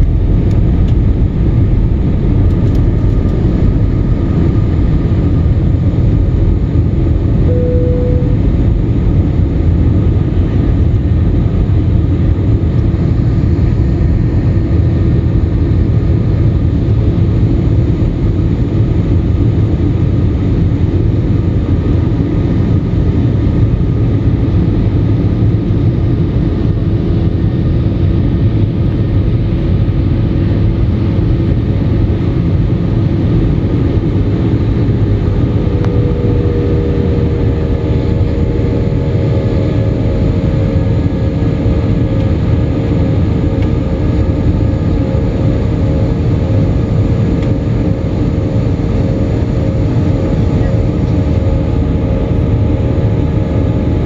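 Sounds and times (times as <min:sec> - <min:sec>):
faint steady hums: 0:00.0 - 0:11.7, 0:31.4 - 0:54.0
jet engines rumbling: 0:00.0 - 0:54.0.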